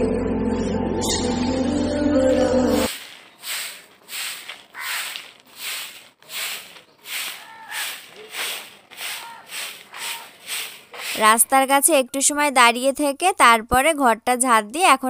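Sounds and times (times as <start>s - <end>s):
broom sweeping earth: 2.9s - 11.6s.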